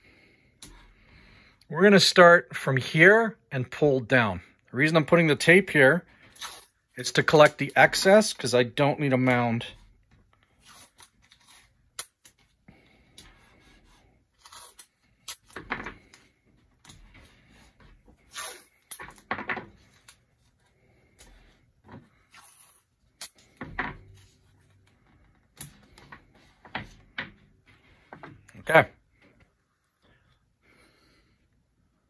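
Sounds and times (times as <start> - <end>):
tape ripping off a roll: 6.2 - 6.8, 10.5 - 12.5, 18.2 - 20.2.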